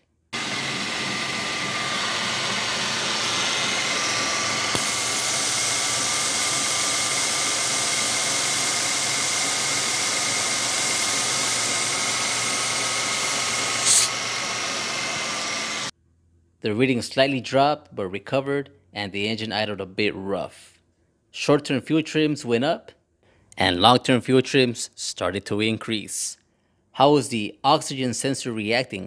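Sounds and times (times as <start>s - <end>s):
air hissing into open hose: 1.2s - 15.9s.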